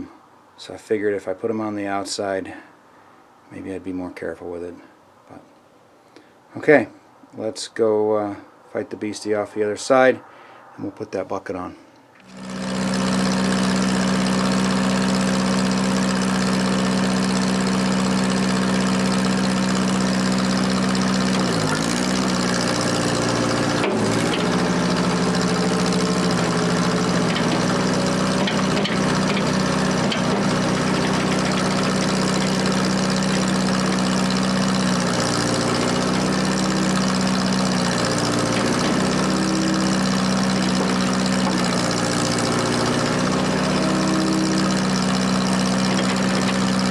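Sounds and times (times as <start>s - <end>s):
tractor engine running: 12.2s - 46.9s.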